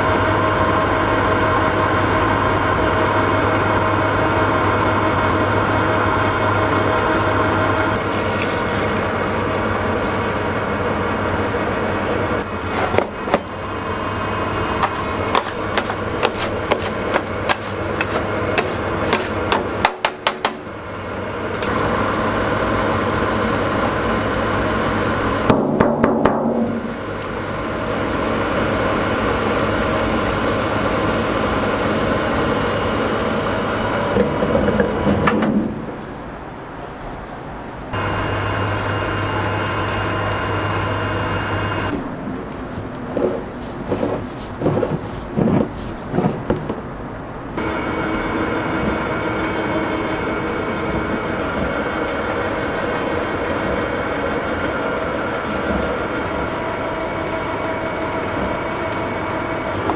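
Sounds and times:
grinding mill humming: 0.0 - 35.4, 37.9 - 47.0, 47.6 - 59.9
rapid sharp clicks and rattles: 47.6 - 59.9.

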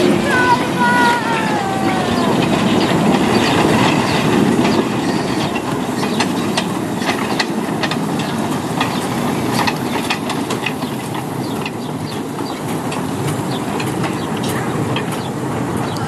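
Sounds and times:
steam train rolling rumble: 0.0 - 16.0
wheels clicking over rail joints: 0.0 - 16.0.

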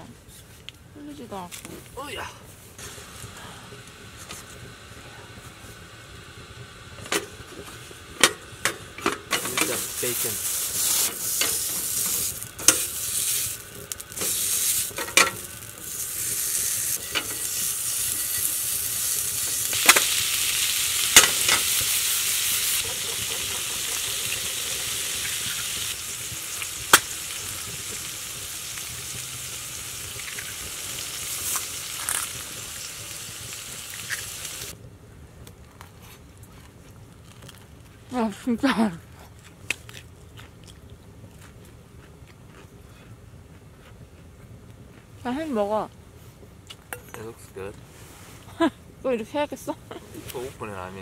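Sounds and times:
bacon sizzling in a pan: 6.0 - 34.8.

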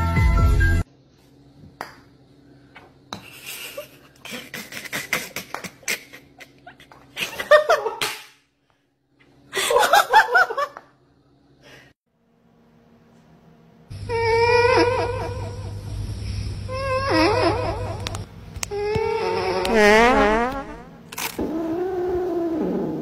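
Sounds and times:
person laughing: 3.3 - 8.0.

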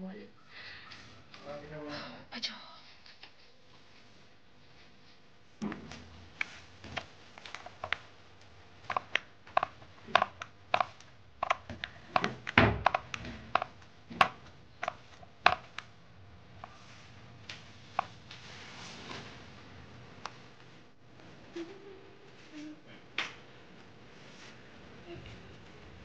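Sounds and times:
paint roller clicking in tray: 8.9 - 15.9.

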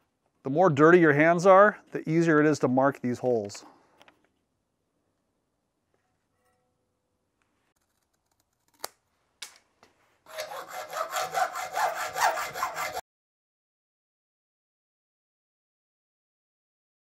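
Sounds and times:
hacksaw cutting metal: 10.3 - 13.0.

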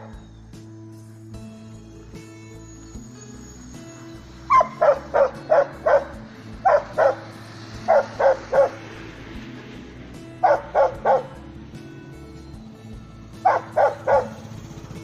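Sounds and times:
dog barking: 4.5 - 8.8, 10.4 - 11.4, 13.4 - 14.4.

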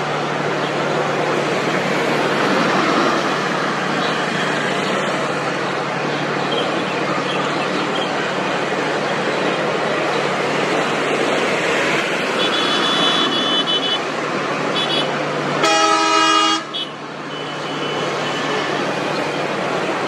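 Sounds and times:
passing trucks and motorbikes: 0.0 - 20.0
vehicle horn blaring: 12.4 - 14.0, 14.8 - 18.7.

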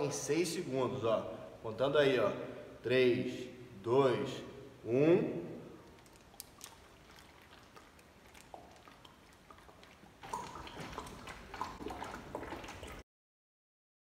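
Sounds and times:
plastic bottle crackling: 5.8 - 11.7
person gulping water from bottle: 5.8 - 13.0.

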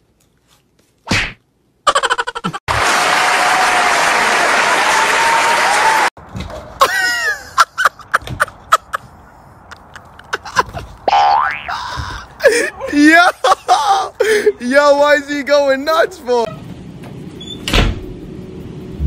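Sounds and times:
sharp smack: 1.1 - 1.4
audience applauding: 2.7 - 6.2.

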